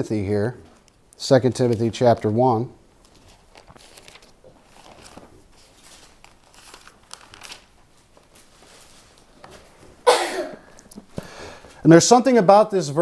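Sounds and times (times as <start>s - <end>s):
pages rustling: 3.0s - 10.0s.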